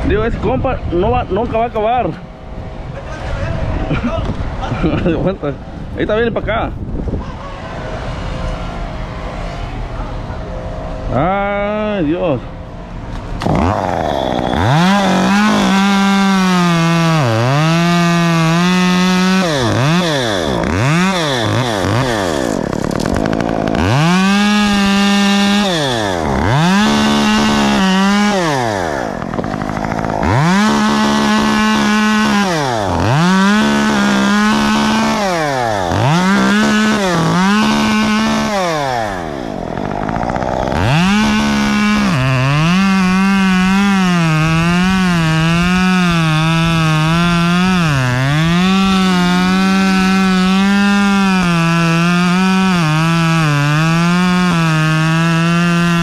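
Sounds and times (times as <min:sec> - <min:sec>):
chainsaw revving and cutting: 0:12.7 - 0:56.0.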